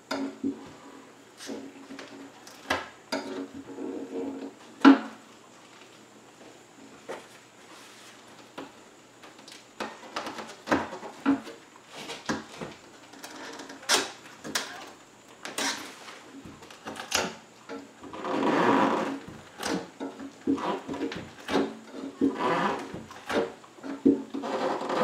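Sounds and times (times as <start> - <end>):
hand tool scraping window pane: 15.5 - 25.0.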